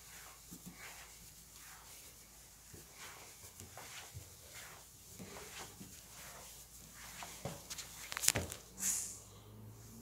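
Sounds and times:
footsteps on stairs and floor: 2.7 - 8.6.

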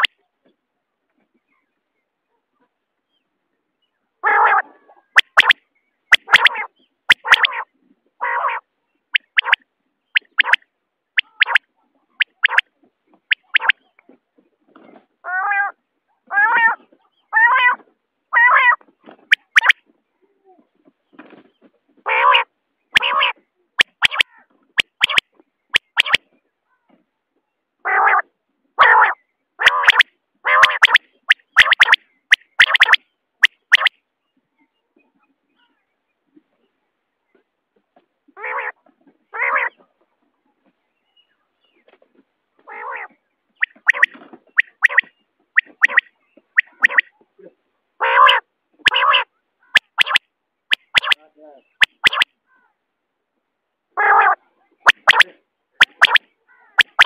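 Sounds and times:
quail calling: 4.2 - 9.6, 10.2 - 10.6, 11.2 - 11.6, 12.2 - 12.7, 13.3 - 13.8, 18.4 - 19.8, 22.1 - 25.2, 25.8 - 26.2, 28.8 - 33.9, 39.4 - 39.8, 42.7 - 47.1, 48.0 - 51.2, 51.8 - 52.3, 54.0 - 57.0
sharp clicks: 5.2 - 7.5, 9.2 - 9.6, 10.2 - 10.6, 11.2 - 11.6, 12.2 - 12.6, 13.3 - 13.7, 19.3 - 19.8, 23.8 - 24.2, 24.8 - 25.2, 25.8 - 26.2, 29.7 - 30.0, 30.6 - 33.9, 43.6 - 46.0, 46.6 - 47.1, 49.8 - 51.2, 51.8 - 52.3, 54.9 - 56.2, 56.8 - 57.0.

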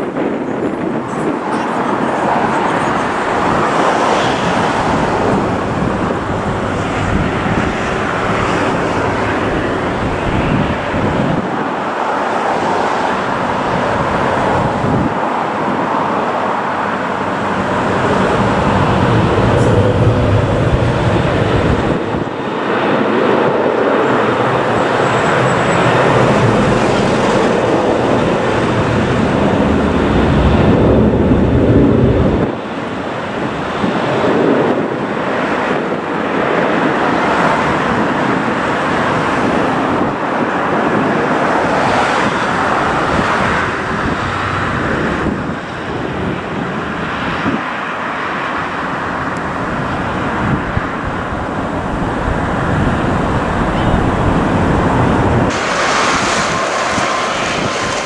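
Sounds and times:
jet engines spooling up: 0.8 - 33.4, 48.1 - 58.0.

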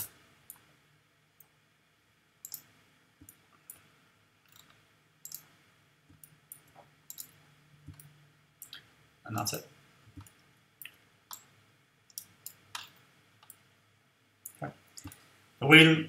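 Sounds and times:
computer mouse clicks: 0.0 - 0.7, 2.4 - 8.9, 10.1 - 13.7, 14.4 - 15.3.

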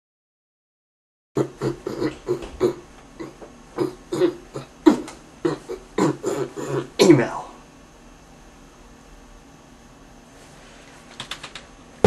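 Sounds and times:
man making choppy vocal sounds: 1.4 - 7.4.

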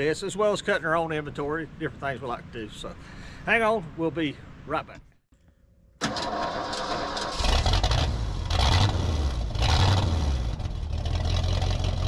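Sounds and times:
large engine running: 6.4 - 12.0.

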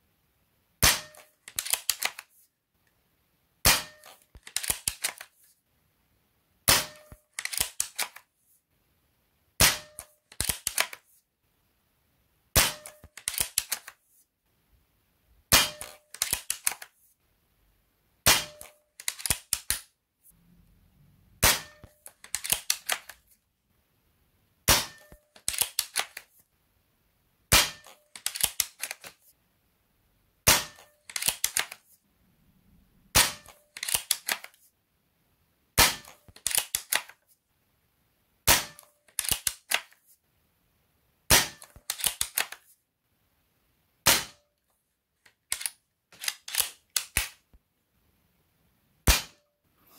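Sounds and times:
air rifle shots: 0.8 - 1.8, 3.6 - 5.0, 6.7 - 7.7, 9.6 - 10.0, 12.6 - 13.7, 15.5 - 16.0, 18.2 - 18.7, 21.4 - 23.0, 24.7 - 25.9, 27.5 - 27.9, 33.1 - 34.2, 49.1 - 49.4
rifle bolt clicking: 1.2 - 2.2, 6.9 - 8.2, 12.8 - 13.9, 15.6 - 16.8, 18.5 - 19.8, 21.8 - 23.2, 25.0 - 26.2, 28.2 - 29.1, 30.8 - 31.8, 33.4 - 34.5, 38.8 - 39.9, 41.7 - 42.6, 45.5 - 47.4.

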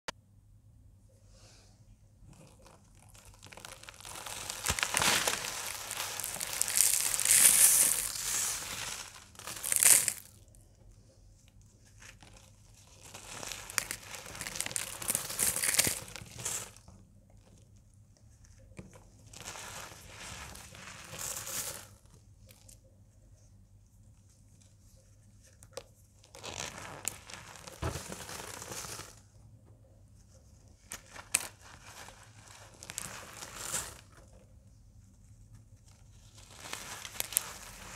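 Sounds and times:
dry crunching and crumbling: 2.3 - 10.5, 12.8 - 16.9.

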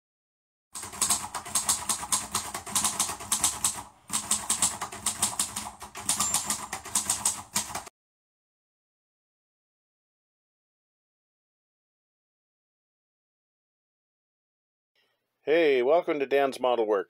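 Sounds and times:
rapid keyboard typing clicks: 0.8 - 7.9.

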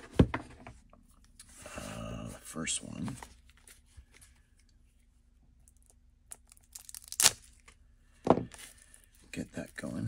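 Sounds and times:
packaging ripping: 6.4 - 7.6.

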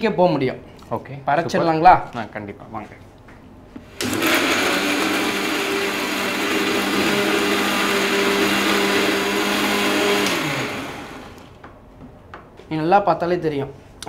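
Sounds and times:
mixer grinder running: 3.8 - 11.6.

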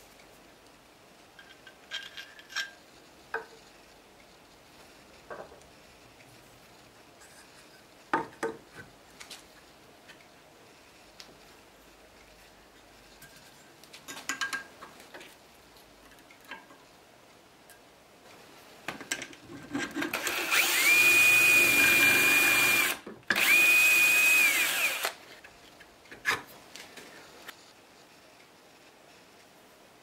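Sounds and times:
cordless drill whining: 20.1 - 25.2.

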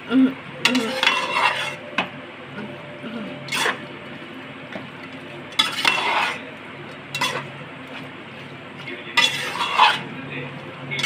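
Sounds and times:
low sizzle: 0.0 - 11.0
spoon scraping in a pan: 0.6 - 2.1, 3.4 - 3.9, 4.7 - 10.2.

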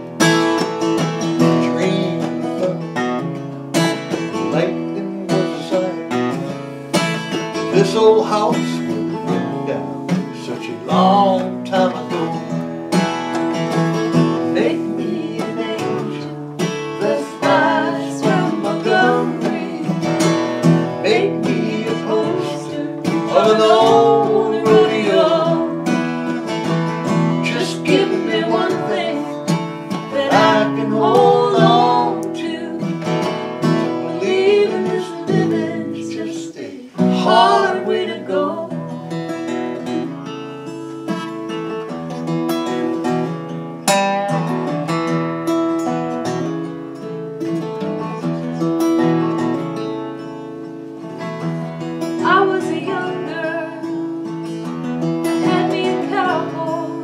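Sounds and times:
acoustic guitars playing: 0.0 - 57.0
person singing: 1.4 - 2.9, 4.3 - 6.6, 7.6 - 12.6, 14.4 - 39.0, 52.2 - 54.0, 55.4 - 57.0.

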